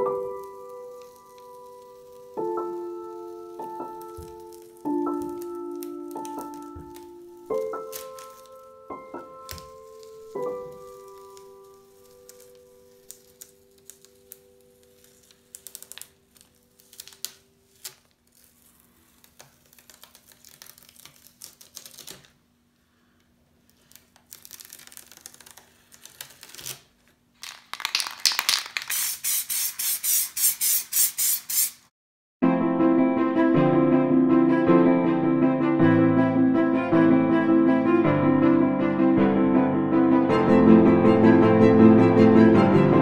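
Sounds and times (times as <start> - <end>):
masking tape peeling off paper: 0.0 - 22.4, 23.6 - 31.9.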